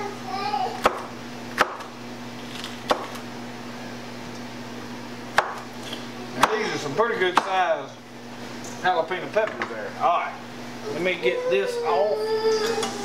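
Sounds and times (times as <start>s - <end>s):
knife chopping on wooden board: 0.8s - 1.9s, 2.8s - 3.2s, 5.3s - 5.7s, 6.4s - 6.7s, 7.3s - 7.6s.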